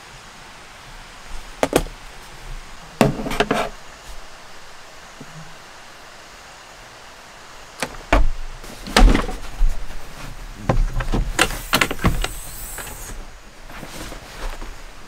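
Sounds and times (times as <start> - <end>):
panel knocks and thumps: 7.8 - 9.8.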